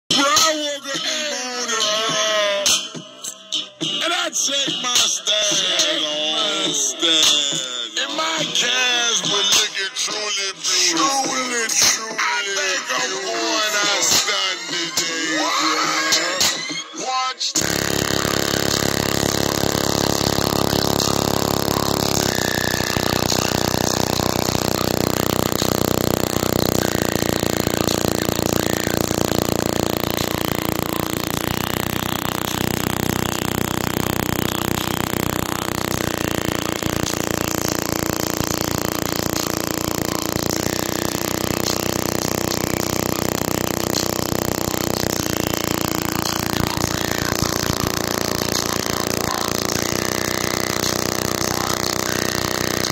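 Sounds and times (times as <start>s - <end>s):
distorted speaker bass drone: 17.6s - 52.9s.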